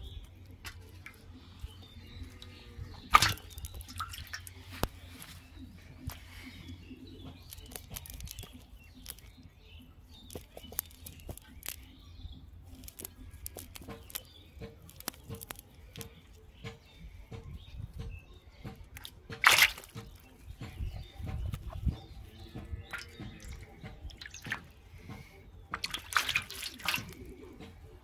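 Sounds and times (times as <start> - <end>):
birds chirping: 0.0 - 28.0
cast net clicking and rustling: 3.0 - 5.4, 7.3 - 9.3, 10.2 - 11.9, 12.6 - 16.2, 18.9 - 20.4, 25.7 - 27.4
splash in metal basin: 3.1 - 4.5, 19.4 - 20.0, 24.2 - 24.6, 25.7 - 27.2.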